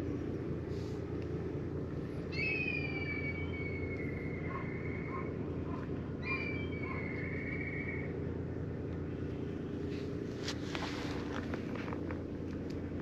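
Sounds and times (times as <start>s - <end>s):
steady low rumble: 0.0s - 13.0s
high-pitched animal calls: 2.2s - 8.2s.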